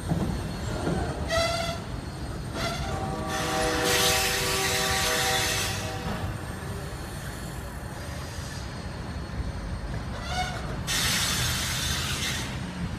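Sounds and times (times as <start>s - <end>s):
train rumbling: 0.0s - 12.9s
train air horn: 2.6s - 6.4s.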